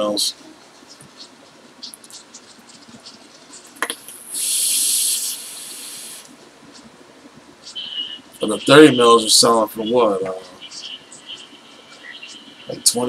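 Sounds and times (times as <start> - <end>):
breathy hiss of exhaled vapour: 4.1 - 6.3.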